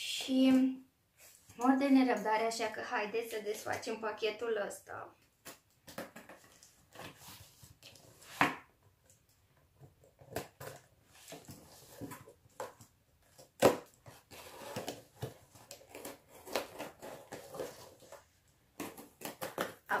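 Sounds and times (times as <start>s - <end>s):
cardboard box tearing: 13.4s - 18.2s.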